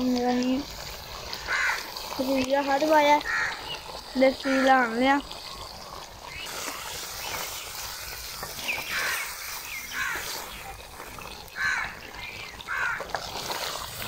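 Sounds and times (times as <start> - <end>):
steady hiss: 0.0 - 14.0
crows cawing: 1.3 - 2.1, 3.2 - 3.8, 4.4 - 4.9, 8.8 - 10.6, 11.5 - 13.3.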